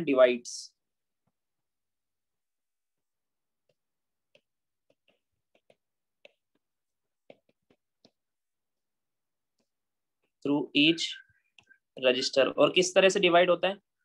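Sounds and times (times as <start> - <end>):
stylus tapping on tablet screen: 3.5 - 8.5.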